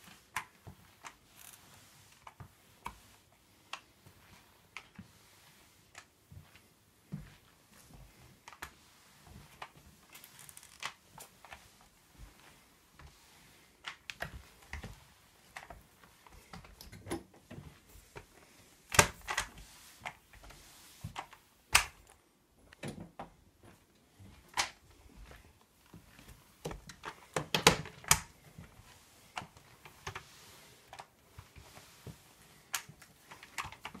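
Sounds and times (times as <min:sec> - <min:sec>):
mop pad swishing on floor: 0:00.0 - 0:22.8, 0:23.5 - 0:34.0
mop head clicking and knocking: 0:26.7 - 0:28.3.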